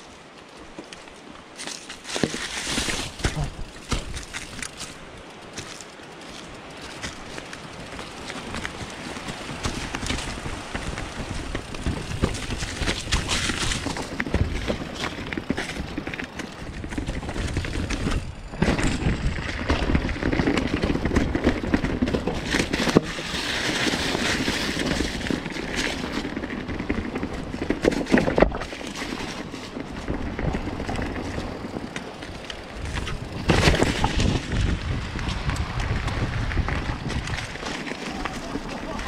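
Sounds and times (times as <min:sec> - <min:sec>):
bike rattling over bumps: 0:00.0 - 0:39.0
tyres rolling through leaves: 0:00.0 - 0:39.0.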